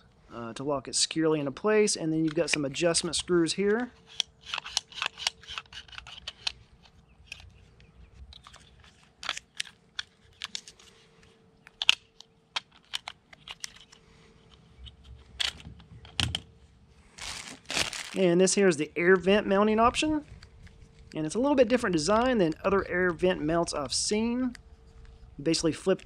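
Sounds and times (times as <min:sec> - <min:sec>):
plastic phone mount clicks: 0:03.7 - 0:06.6, 0:11.7 - 0:14.0
soft rustling: 0:16.5 - 0:18.3.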